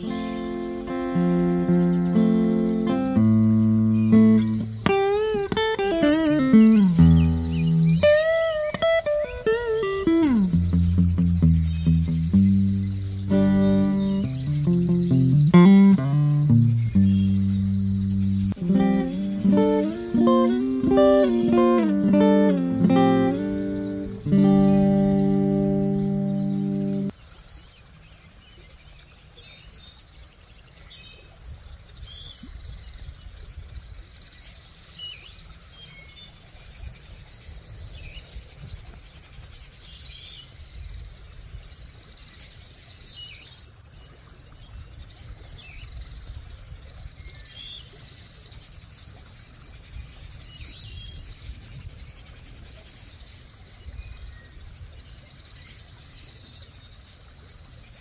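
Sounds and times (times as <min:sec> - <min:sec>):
birds chirping: 0:00.0 - 0:27.2.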